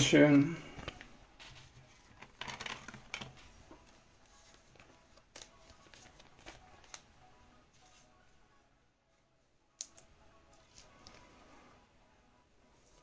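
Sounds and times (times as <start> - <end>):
trading cards rustling: 0.8 - 7.1.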